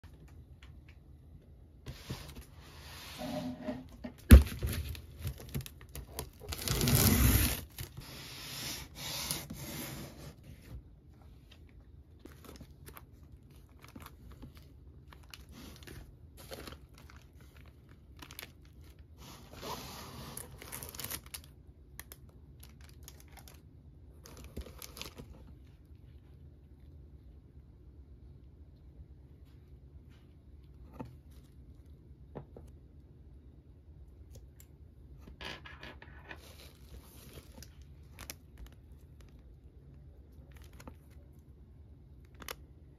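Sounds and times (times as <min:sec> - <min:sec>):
plastic and bubble wrap rustling: 0:04.3 - 0:10.7, 0:12.2 - 0:25.6, 0:36.1 - 0:39.6
packing tape tearing: 0:05.3 - 0:08.0.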